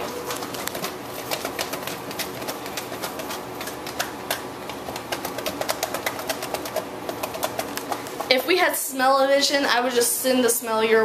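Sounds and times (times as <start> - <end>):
meat rattling in shaken container: 0.0 - 8.4.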